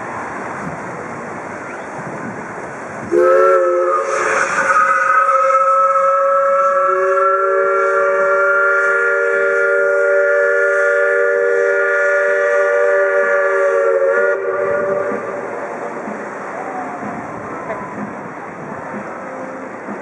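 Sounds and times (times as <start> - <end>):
wind: 0.0 - 20.0
steam whistle chord: 3.1 - 17.1.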